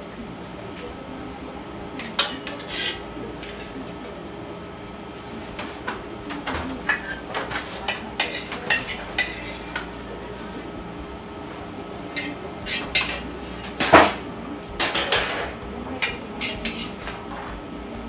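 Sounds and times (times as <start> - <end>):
steady background hum: 0.0 - 18.0
metal spoon scraping frying pan: 2.0 - 3.8, 5.5 - 10.5, 12.0 - 14.2, 14.8 - 17.4.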